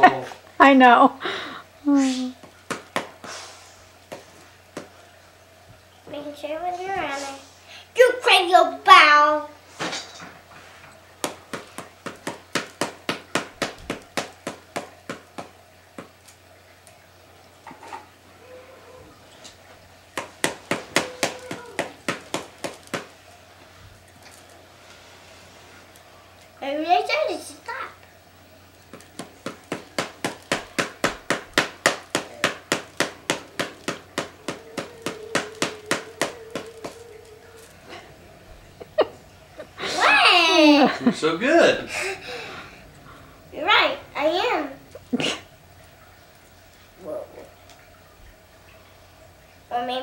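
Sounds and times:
paddle ball taps: 2.4 - 3.3, 4.1 - 4.9, 11.2 - 16.2, 20.2 - 23.1, 28.9 - 37.0.

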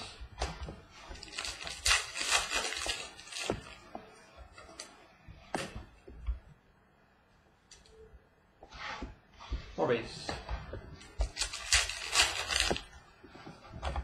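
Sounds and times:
cards rustling and sliding: 1.2 - 3.8, 11.2 - 12.9.

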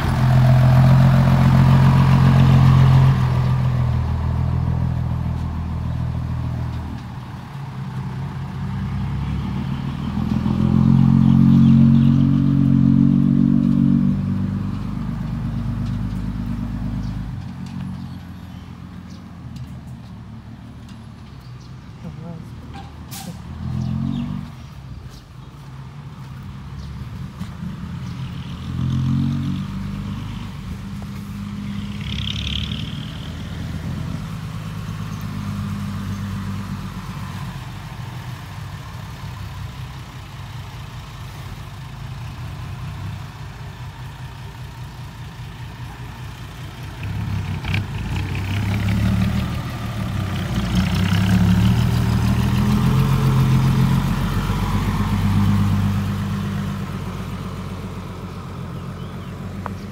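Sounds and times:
diesel truck engine running: 0.0 - 23.6, 32.6 - 59.9.

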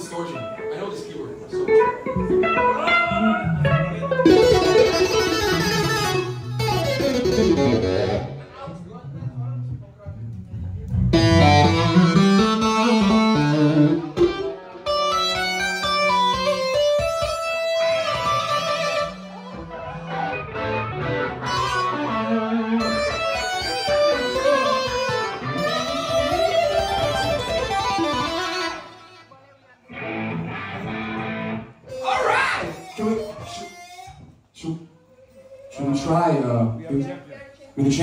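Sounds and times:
electronic keyboard playing: 11.2 - 29.0.

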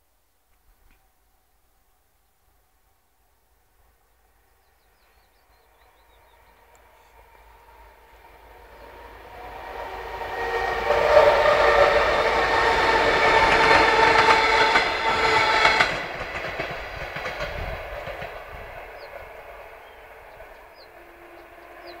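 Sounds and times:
train wheels clattering over rail joints: 13.1 - 19.2.

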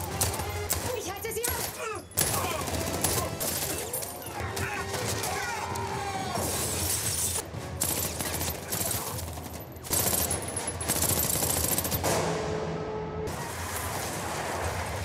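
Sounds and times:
rapid gunfire: 0.0 - 5.5, 7.7 - 12.4
film score music: 0.0 - 15.0.

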